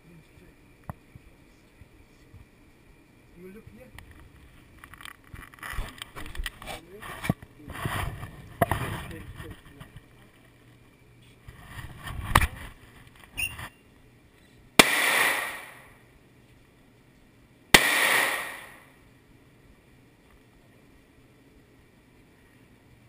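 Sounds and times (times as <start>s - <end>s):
gunshots with ringing echo: 14.8s - 15.9s, 17.7s - 18.9s.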